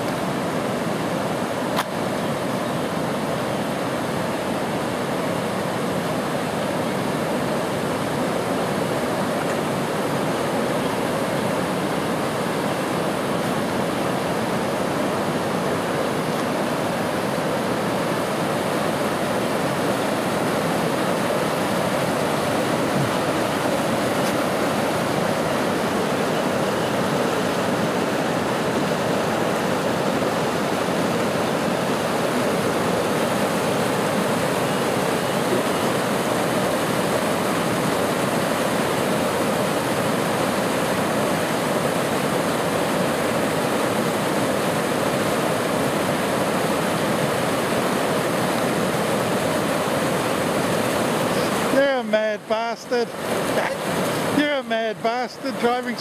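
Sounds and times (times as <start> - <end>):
floodwater rushing: 0.0 - 56.0.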